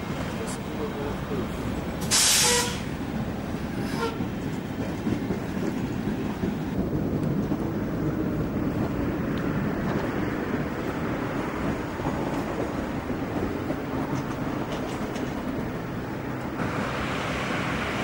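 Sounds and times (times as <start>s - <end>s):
trolleybus running rumble: 0.0s - 18.0s
short loud hiss: 2.0s - 2.9s.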